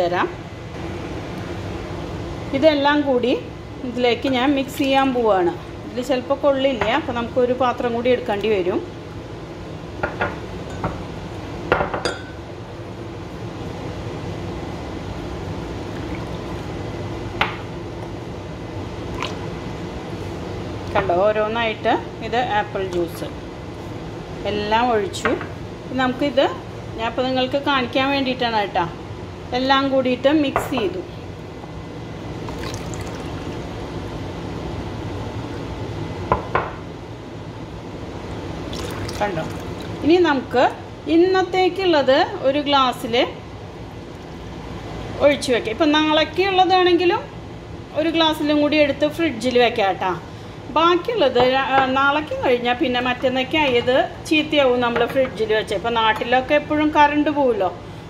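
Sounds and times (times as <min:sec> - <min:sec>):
glass clinking against glass: 0:12.0 - 0:12.4
juice pouring into glass jugs: 0:32.4 - 0:33.6, 0:38.6 - 0:40.0.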